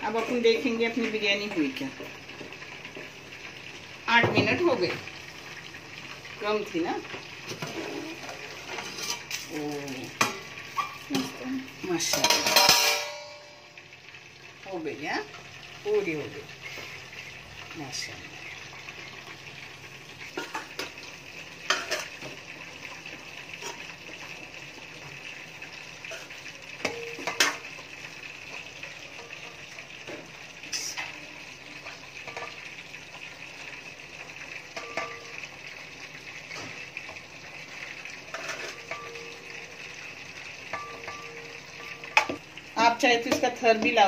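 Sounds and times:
spoon clinking on steel pot: 12.1s - 13.5s, 26.8s - 27.7s, 34.8s - 35.4s, 38.3s - 39.6s, 40.7s - 42.4s.

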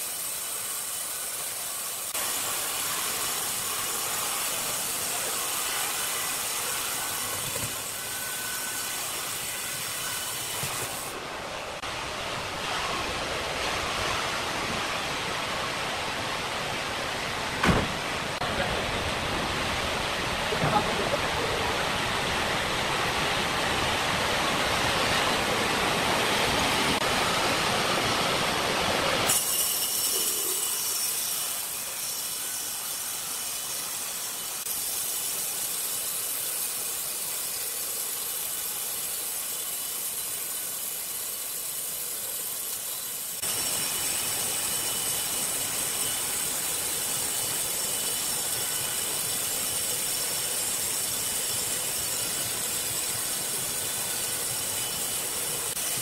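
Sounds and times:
band saw blade cutting wood: 0.0s - 11.2s, 29.2s - 56.0s.

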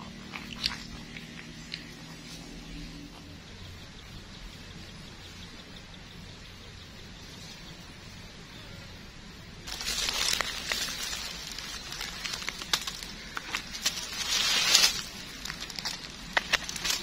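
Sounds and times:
dry leaves rustling and crackling: 9.6s - 17.0s
twigs snapping: 9.7s - 17.0s.

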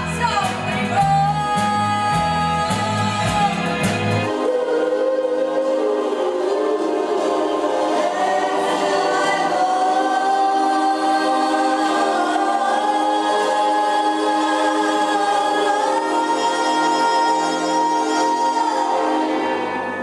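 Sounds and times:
backing music: 0.0s - 20.0s
woman singing a long note: 9.9s - 19.4s.

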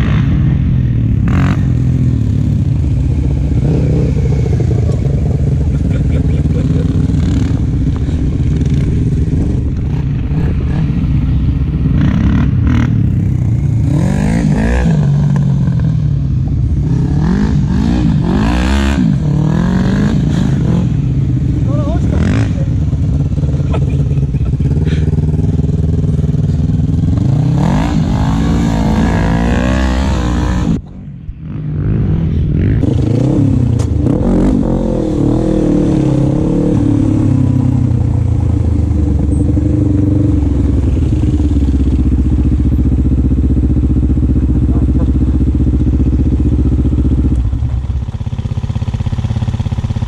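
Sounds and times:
quad bike engine revving: 0.0s - 50.0s.

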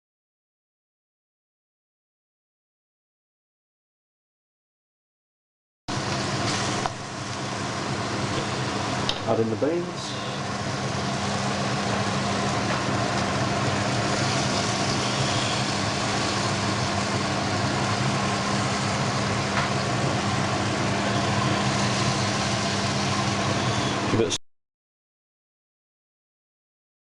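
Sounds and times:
food sizzling in hot oil: 5.9s - 24.1s
steady low hum: 5.9s - 24.4s.

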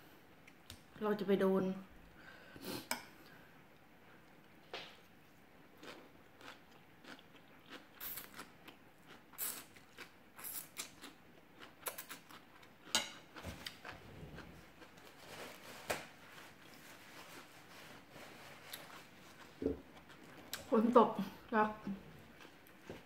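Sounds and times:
person chewing: 5.7s - 15.2s, 18.6s - 20.7s, 22.0s - 23.0s.

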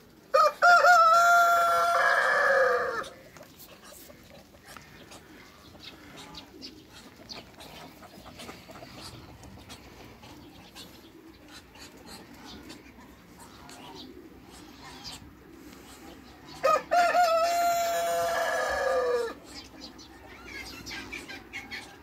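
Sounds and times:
rooster crowing: 0.3s - 3.2s, 16.6s - 19.4s
faint clucking: 3.1s - 16.2s.

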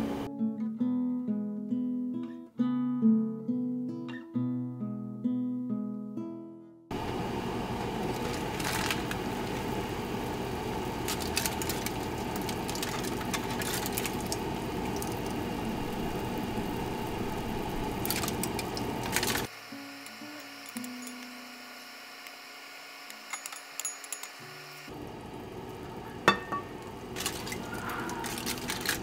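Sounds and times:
sauce bubbling and sizzling in a pan: 7.0s - 21.0s, 24.9s - 28.4s.

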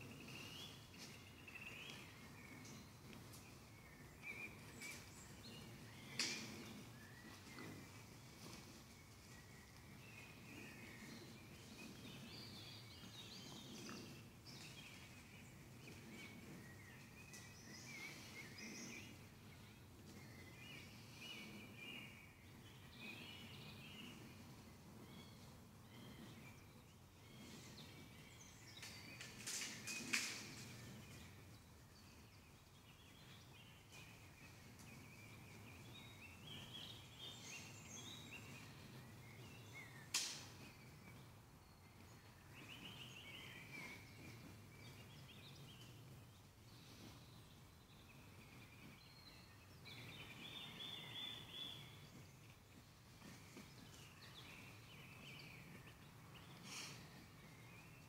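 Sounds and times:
small birds chirping: 0.0s - 58.0s
brief crackle: 40.1s - 40.6s.

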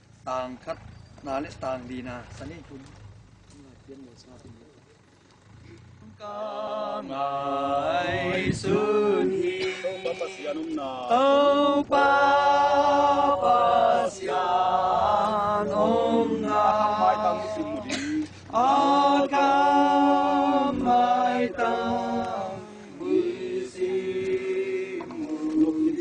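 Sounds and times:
group singing a hymn unaccompanied: 6.0s - 26.0s.

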